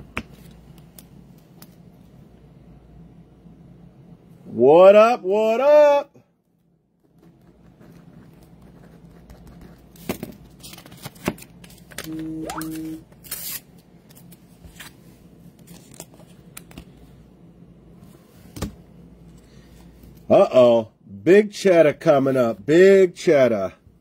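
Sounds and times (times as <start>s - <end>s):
steady tone: 12.1s - 13.1s.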